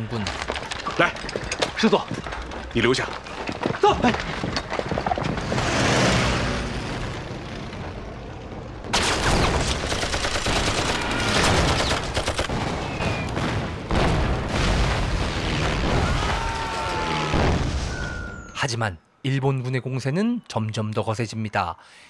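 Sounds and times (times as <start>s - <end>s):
rumble: 0.3s - 16.4s
rapid gunfire: 8.9s - 14.6s.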